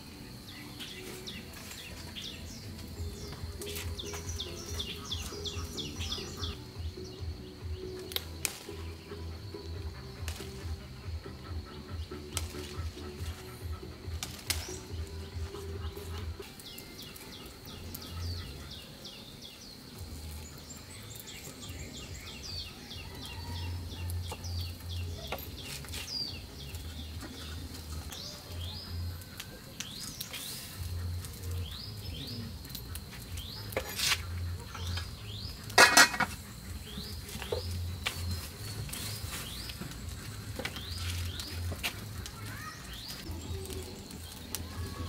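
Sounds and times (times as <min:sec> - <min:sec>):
small birds chirping: 0:00.0 - 0:45.0
pot lid clattering on pot: 0:35.8 - 0:36.4.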